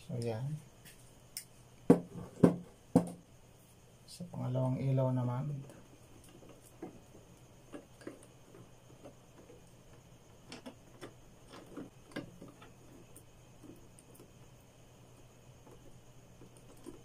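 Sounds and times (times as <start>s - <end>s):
clicks and taps of wires: 7.7s - 14.5s.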